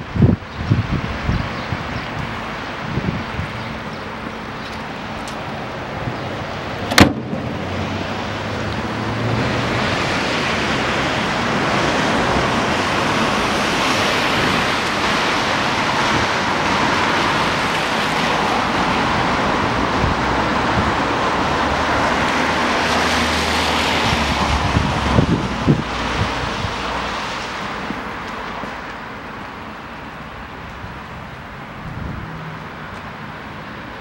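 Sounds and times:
steady rushing noise: 0:00.0 - 0:21.8
car bonnet shutting bang: 0:06.8 - 0:08.2.

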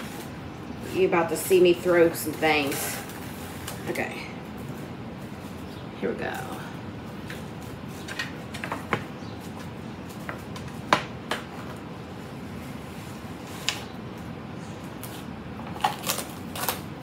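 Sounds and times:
cling wrap crinkling and clicking: 0:15.0 - 0:17.0.

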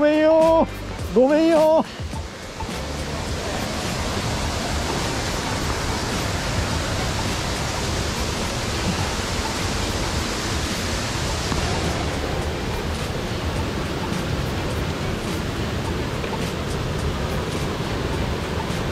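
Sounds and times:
waterfall and stream rushing: 0:00.0 - 0:18.9.

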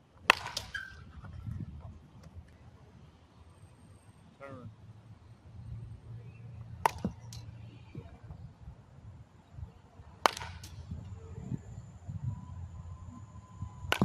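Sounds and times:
baseball bat cracking ball: 0:00.2 - 0:00.9, 0:06.8 - 0:07.5, 0:10.2 - 0:10.8.

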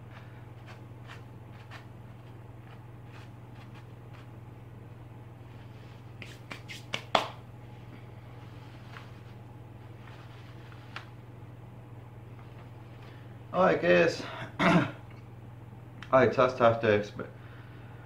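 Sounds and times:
hand brushing dirt on paper: 0:00.0 - 0:04.3, 0:05.5 - 0:07.0, 0:08.4 - 0:11.2
steady low hum: 0:00.0 - 0:18.0.

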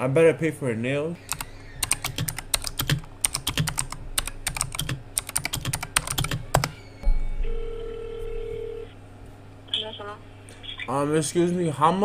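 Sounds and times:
computer keyboard typing: 0:01.3 - 0:06.8
telephone tone: 0:07.0 - 0:09.0.

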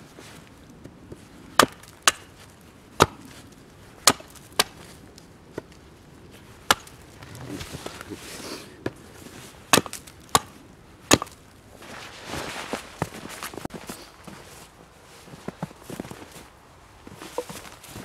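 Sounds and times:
axe chopping wood: 0:01.6 - 0:02.4, 0:03.0 - 0:03.3, 0:04.0 - 0:04.8, 0:06.6 - 0:08.0, 0:09.7 - 0:11.4.

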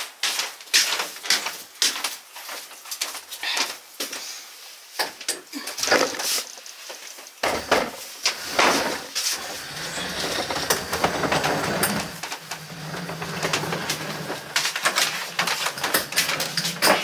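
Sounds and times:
bench scraping across wooden floor: 0:07.4 - 0:17.0.

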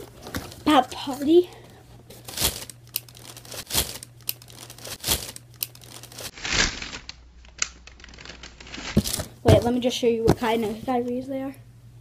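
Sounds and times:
packaging crinkling: 0:02.1 - 0:09.4.

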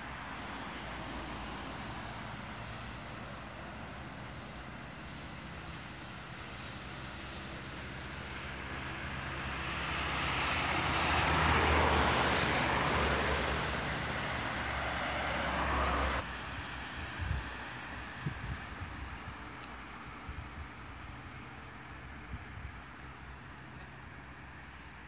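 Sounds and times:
vehicle engine humming: 0:00.0 - 0:16.4.

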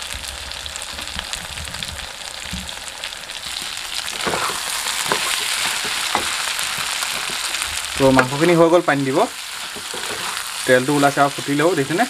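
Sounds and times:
meat sizzling in oil: 0:00.0 - 0:12.0
spatula scraping pan: 0:03.5 - 0:08.6, 0:09.4 - 0:11.2.

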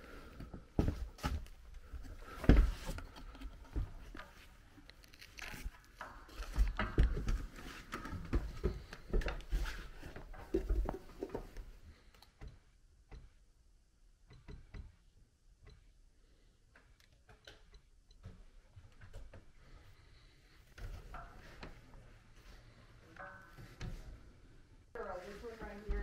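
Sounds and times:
footsteps on wooden ladder: 0:00.3 - 0:04.6, 0:05.6 - 0:11.7.

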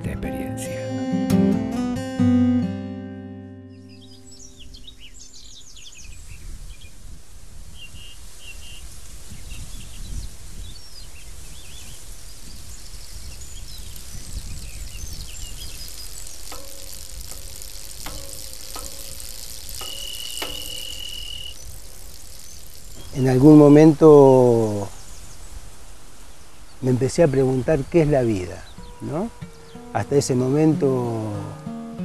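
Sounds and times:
acoustic guitar: 0:00.0 - 0:04.9, 0:28.6 - 0:32.0
small birds chirping: 0:03.6 - 0:32.0
sharp clicks: 0:13.6 - 0:23.6.

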